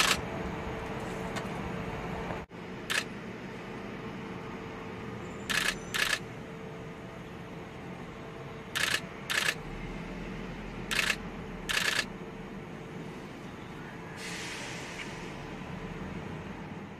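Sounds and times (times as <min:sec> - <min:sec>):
camera shutter clicks: 0:00.0 - 0:00.2, 0:05.5 - 0:06.2, 0:08.8 - 0:09.6, 0:10.9 - 0:12.1
outdoor background noise: 0:00.0 - 0:16.9.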